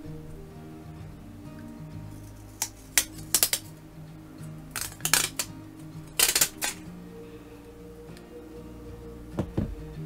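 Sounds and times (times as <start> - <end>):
plastic film peeling and crinkling: 2.1 - 3.8, 4.7 - 6.9.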